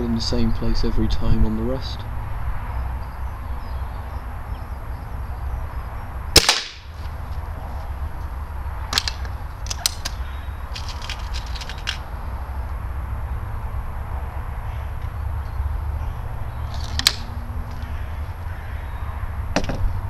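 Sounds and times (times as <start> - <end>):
air rifle shot: 6.4 - 6.9
rifle handling clicks: 8.9 - 12.0, 16.7 - 17.3.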